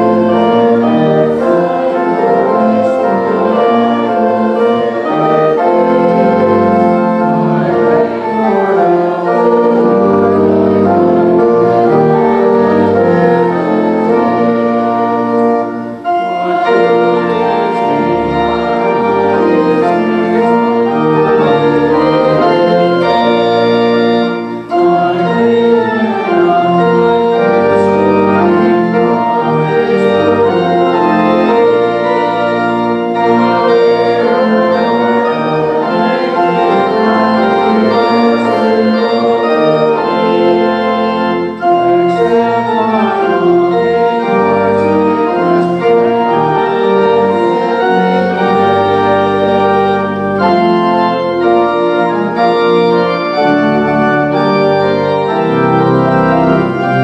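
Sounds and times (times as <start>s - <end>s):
pipe organ playing chords: 0.0s - 57.0s.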